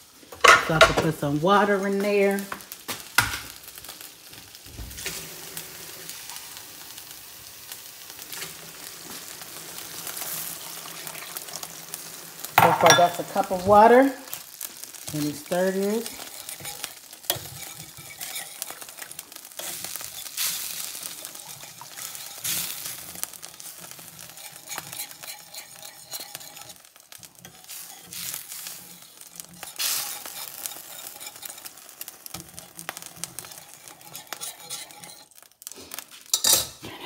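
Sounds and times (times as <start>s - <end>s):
pan sizzling: 0.0s - 37.0s
whisk scraping and clinking on pan: 12.5s - 14.0s, 14.6s - 35.5s, 36.3s - 36.8s.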